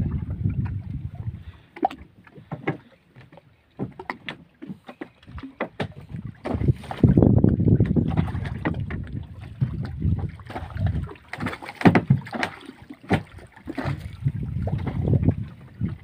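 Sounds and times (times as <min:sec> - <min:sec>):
wind and water against hull: 0:00.0 - 0:16.0
knocks and clatters on board: 0:02.4 - 0:14.1.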